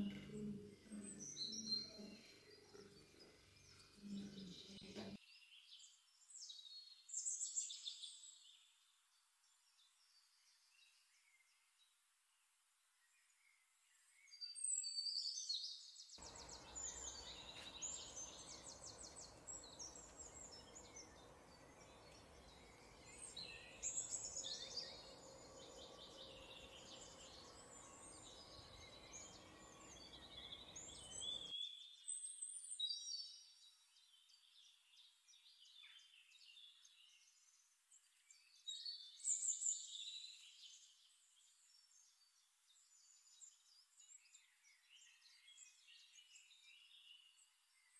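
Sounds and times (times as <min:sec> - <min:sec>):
songbirds chirping and trilling: 0:00.0 - 0:47.9
soft hiss: 0:16.2 - 0:31.5.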